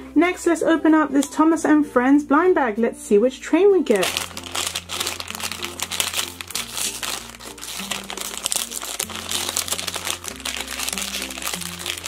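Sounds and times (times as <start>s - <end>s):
background music: 0.0s - 12.0s
plastic bag crinkling: 3.9s - 12.0s.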